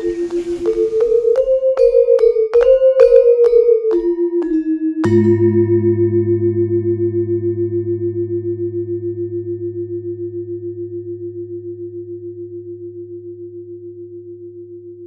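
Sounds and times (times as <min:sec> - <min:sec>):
sustained bell-like tone: 0:00.0 - 0:04.3.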